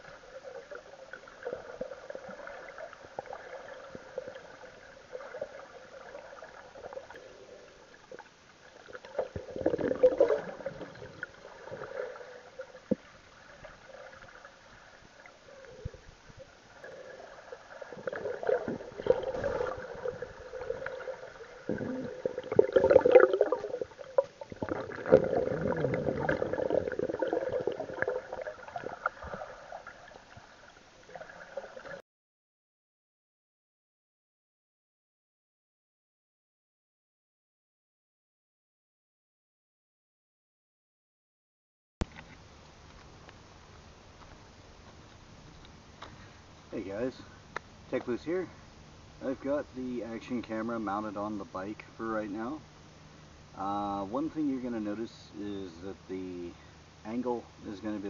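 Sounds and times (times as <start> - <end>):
faint hum: 0.0 - 32.0, 42.0 - 58.0
muffled underwater sloshing: 0.0 - 32.0.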